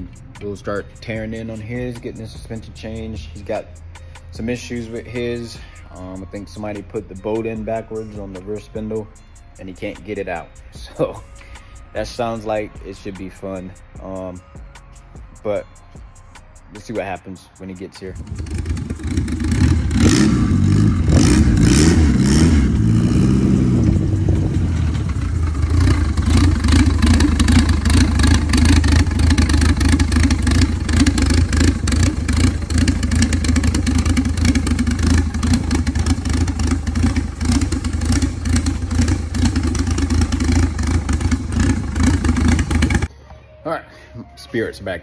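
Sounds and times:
car engine running: 18.2 - 43.1.

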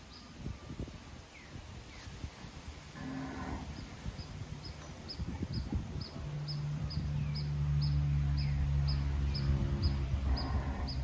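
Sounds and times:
cattle mooing: 10.2 - 11.0.

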